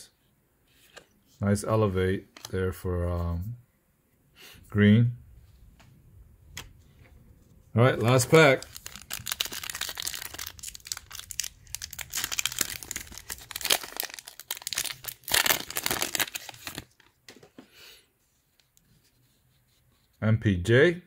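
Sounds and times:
cards rustling: 7.8 - 17.6
foil wrapper crinkling and tearing: 7.9 - 17.1.

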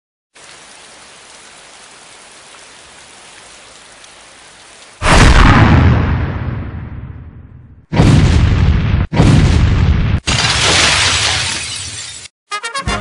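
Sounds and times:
loud deep boom: 5.0 - 10.2.

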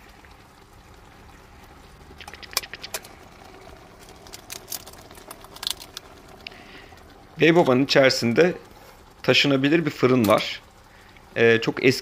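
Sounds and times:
sauce simmering in a pan: 0.0 - 12.0
small pops and clicks: 2.1 - 3.2.

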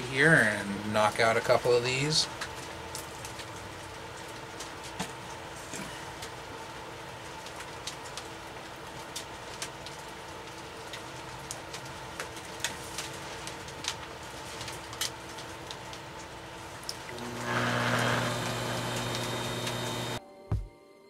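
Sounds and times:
potter's wheel humming: 17.0 - 20.2.

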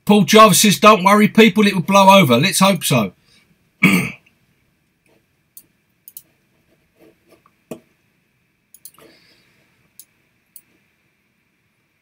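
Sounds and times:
faint sharp clicks: 8.7 - 9.0.

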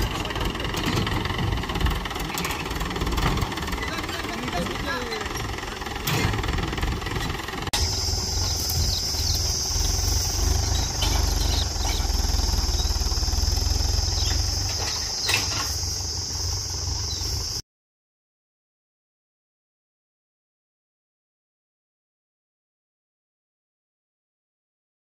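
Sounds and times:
diesel tractor engine rumbling: 0.0 - 17.6.

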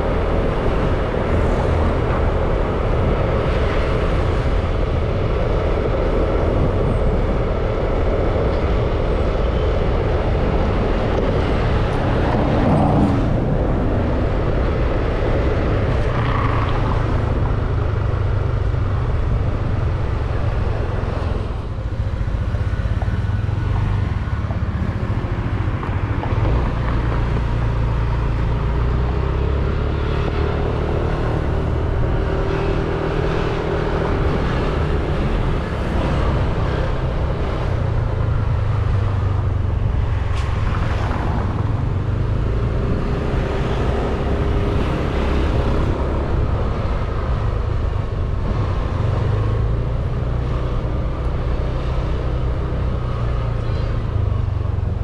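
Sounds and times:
road and traffic noise: 0.0 - 55.0.

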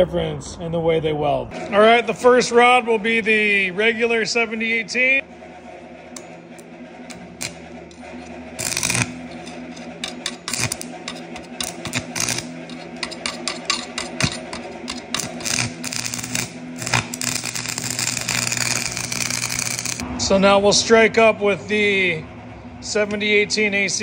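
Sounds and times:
transformer hum: 0.0 - 24.0
welding arc crackling: 6.2 - 20.0.

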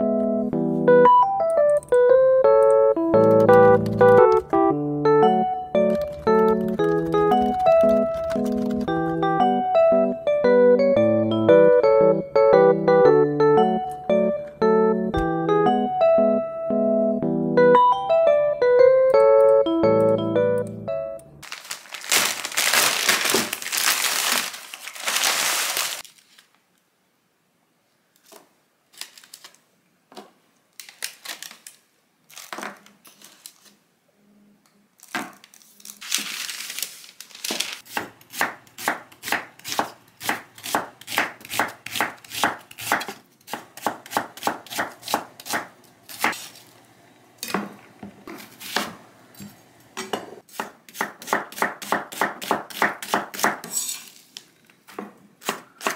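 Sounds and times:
plastic and paper crinkling: 6.8 - 8.9, 21.4 - 26.7, 28.2 - 29.7, 30.7 - 33.8, 35.0 - 37.9
knife chopping on wooden board: 37.9 - 46.5, 50.1 - 53.7.

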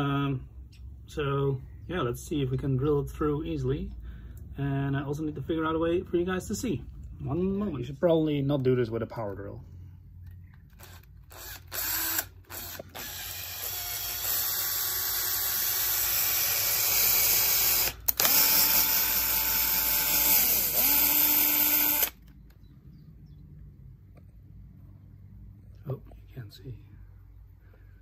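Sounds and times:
cordless drill motor whine: 10.7 - 22.2.

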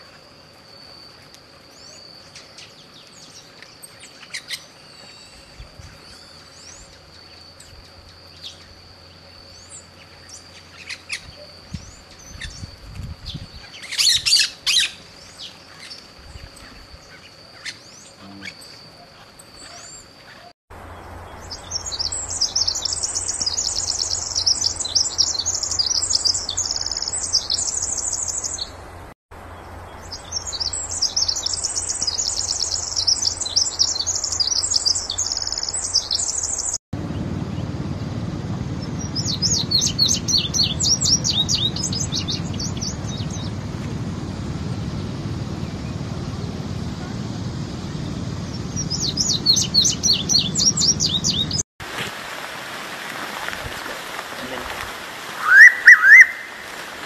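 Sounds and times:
faint steady high tone: 0.0 - 28.5
songbirds singing: 1.7 - 37.8, 38.8 - 43.9, 44.8 - 51.6, 55.4 - 56.7
rapid high bird trilling: 9.4 - 20.5, 38.8 - 43.5, 48.5 - 51.6, 55.4 - 56.7
low rumble: 37.0 - 51.6.

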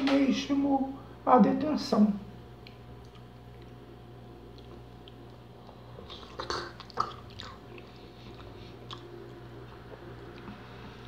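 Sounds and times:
steady low hum: 0.0 - 11.0
man biting and chewing: 2.6 - 10.7.

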